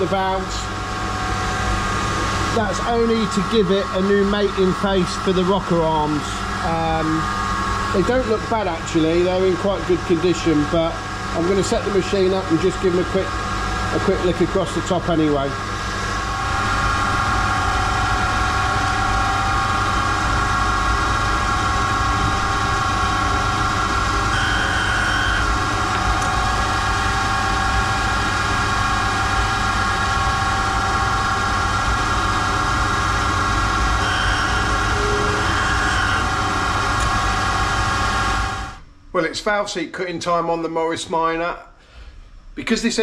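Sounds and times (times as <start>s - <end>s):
valve grinding machine humming: 0.0s - 39.1s.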